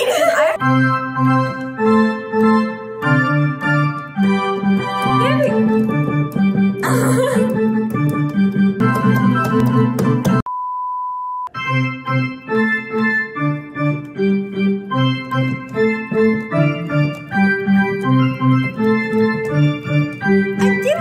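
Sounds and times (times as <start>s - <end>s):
digital piano melody over chords: 0.6s - 10.5s, 11.5s - 21.0s
high beep: 10.5s - 11.6s.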